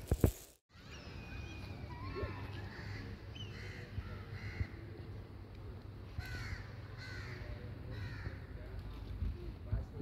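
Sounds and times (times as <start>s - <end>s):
birds calling: 0.7s - 4.8s.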